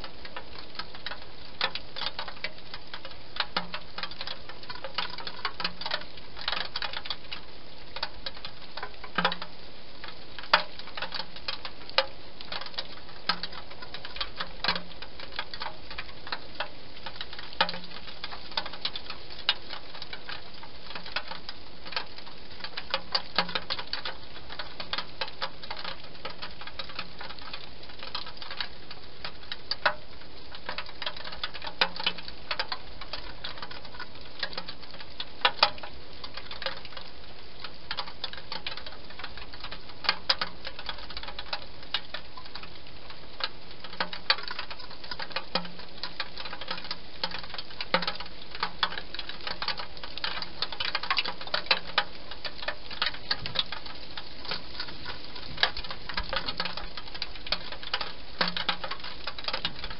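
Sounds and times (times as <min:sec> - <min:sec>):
steady hiss: 0:00.0 - 0:59.9.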